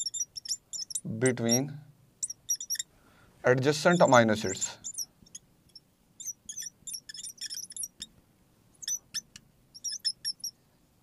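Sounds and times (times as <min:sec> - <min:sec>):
marker squeaking on board: 0:00.0 - 0:02.9, 0:04.7 - 0:08.1, 0:08.8 - 0:10.5.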